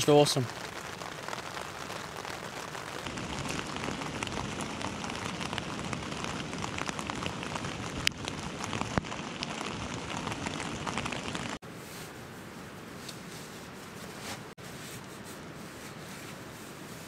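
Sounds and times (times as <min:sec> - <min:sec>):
rain pattering on a tent: 0:00.0 - 0:11.6.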